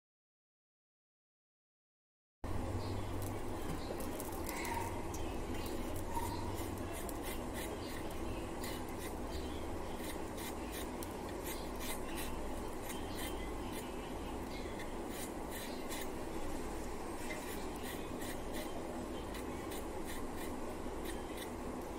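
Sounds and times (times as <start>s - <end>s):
scraping against a blade: 5.6s - 16.2s, 17.2s - 21.6s.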